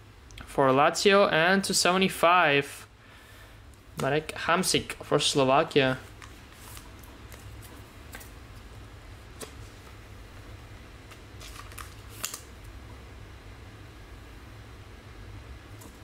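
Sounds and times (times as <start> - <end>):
low steady hum: 0.0 - 16.0
cards rustling and clicking: 6.1 - 8.7, 11.0 - 12.5.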